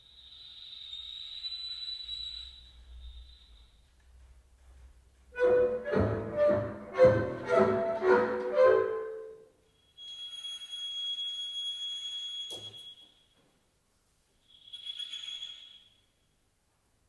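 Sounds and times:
chamber ensemble accented chords: 0:05.4 - 0:09.5.

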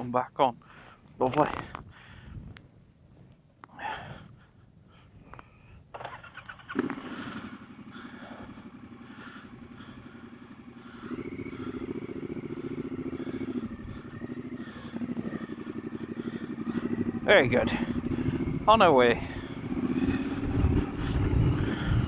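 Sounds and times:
motorcycle engine starting and idling: 0:05.9 - 0:22.0.

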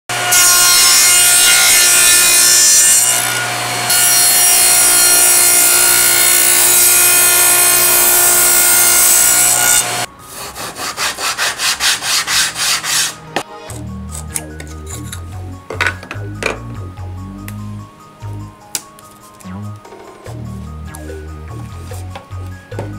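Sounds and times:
table saw cutting plywood: 0:00.1 - 0:13.8
sanding block rubbing wood: 0:10.3 - 0:13.3.

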